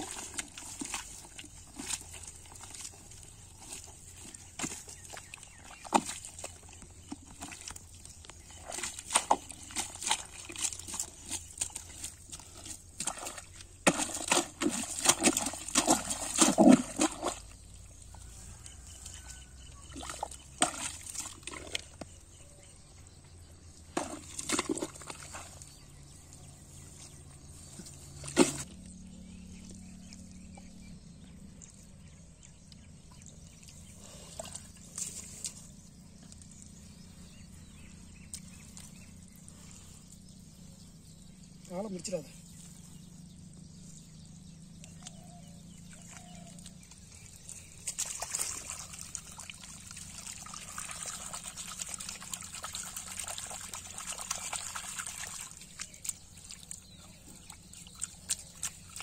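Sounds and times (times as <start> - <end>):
hands squelching in wet mud: 0.0 - 22.2, 23.7 - 29.0, 44.8 - 59.0.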